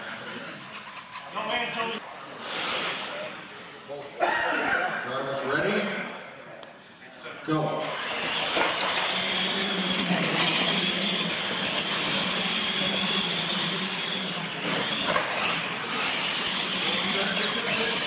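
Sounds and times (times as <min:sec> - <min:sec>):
toy truck motors whining: 0:00.0 - 0:02.0, 0:07.8 - 0:18.0.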